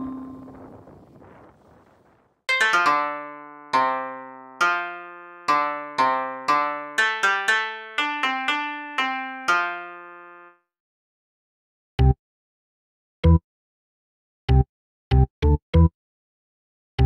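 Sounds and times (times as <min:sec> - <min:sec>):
melody of struck notes: 0:02.5 - 0:10.5.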